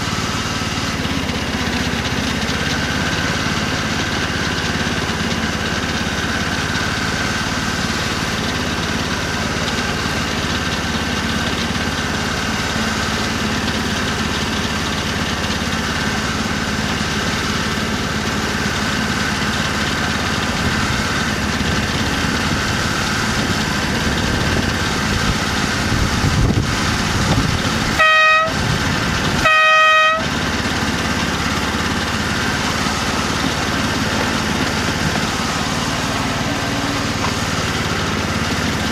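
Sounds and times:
model diesel locomotive engine running: 0.0s - 38.9s
locomotive horn toots: 27.8s - 30.9s.

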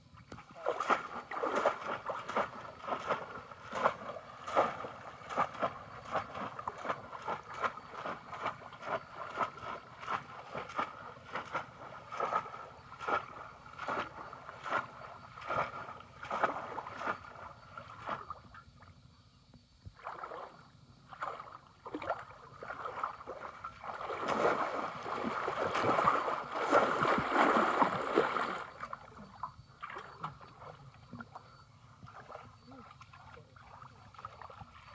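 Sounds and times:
pond water splashing: 0.0s - 19.1s, 19.8s - 34.9s
continuous water sloshing: 0.0s - 34.9s.

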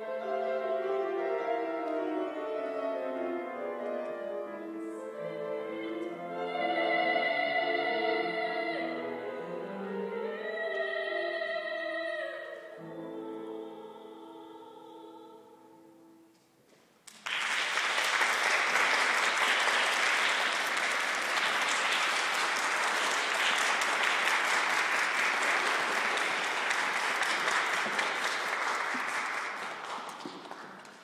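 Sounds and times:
audience applauding: 17.1s - 31.0s.

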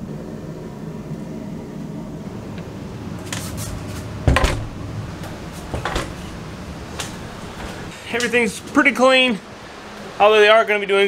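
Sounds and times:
steady low hum: 0.0s - 10.4s
door shutting thud: 4.2s - 7.9s.

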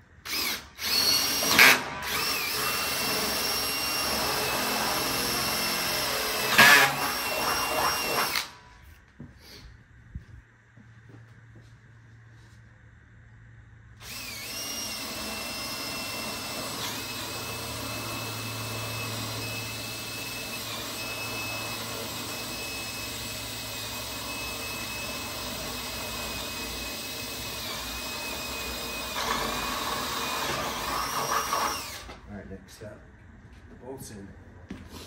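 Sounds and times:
power drill whining: 0.2s - 8.7s, 14.0s - 32.2s.

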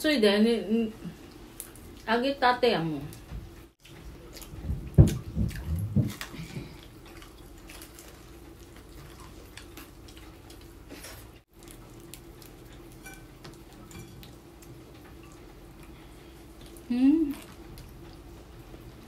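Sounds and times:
wet chewing and lip smacking: 3.8s - 19.0s.

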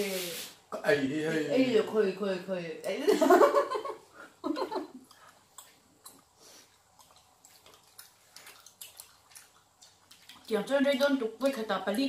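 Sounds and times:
chewing: 5.0s - 11.6s.

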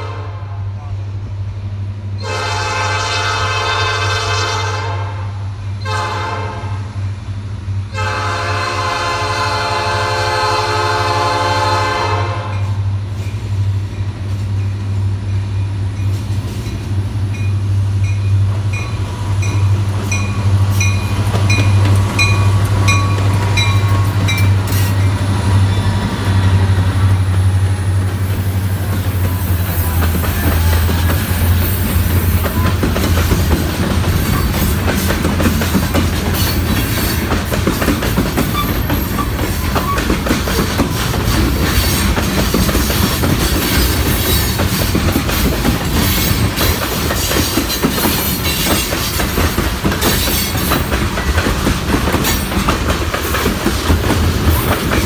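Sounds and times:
locomotive horn blasts: 0.0s - 0.7s, 2.2s - 6.8s, 7.9s - 12.8s
train rumble and rail noise: 0.0s - 55.0s
locomotive bell ringing: 12.5s - 26.0s.

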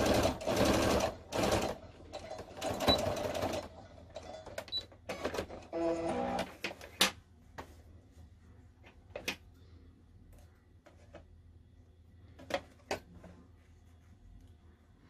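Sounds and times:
low steady hum: 3.6s - 15.0s.

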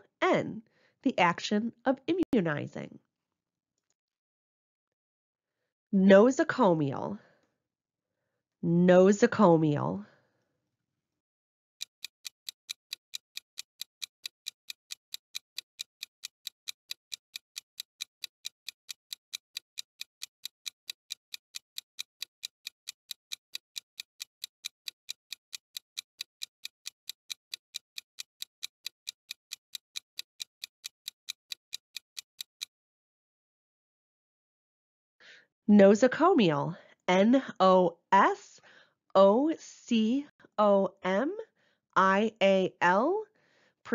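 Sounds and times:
clock ticking: 11.8s - 32.8s.

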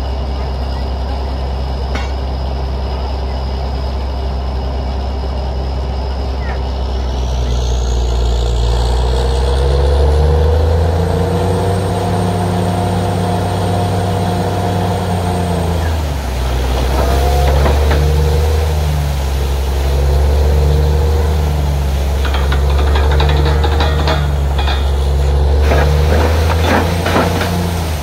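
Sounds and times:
drilling rig engine running: 0.0s - 28.0s
compressed air blowing water: 15.7s - 28.0s.

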